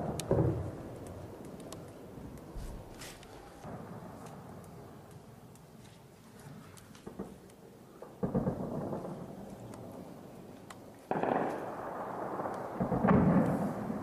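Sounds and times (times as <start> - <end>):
faint gunshots: 8.0 - 9.7, 11.1 - 14.0.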